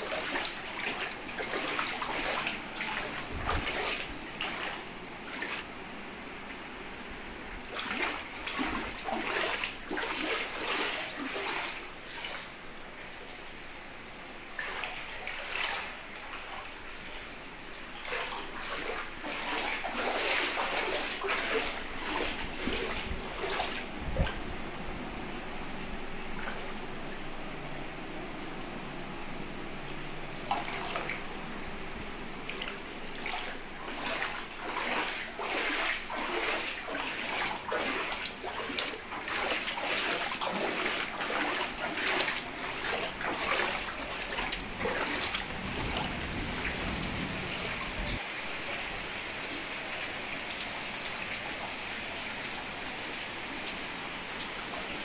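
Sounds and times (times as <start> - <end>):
footsteps splashing through water: 0.0 - 5.7, 7.7 - 12.5, 14.6 - 16.8, 17.9 - 24.5, 30.5 - 31.4, 32.4 - 48.8
steady hiss of water: 0.0 - 55.0.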